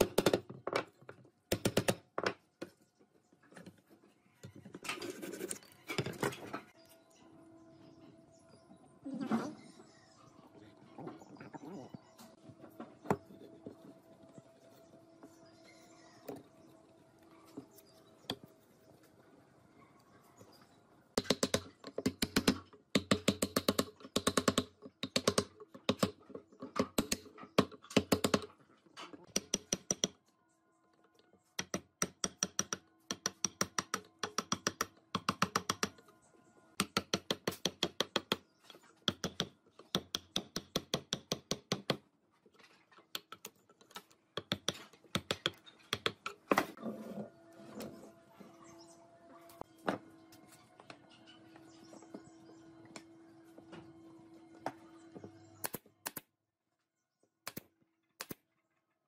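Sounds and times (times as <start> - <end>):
wood chisel tapping: 29.3 - 30.2, 31.6 - 36.0, 36.8 - 38.4, 39.0 - 42.0, 44.4 - 46.4.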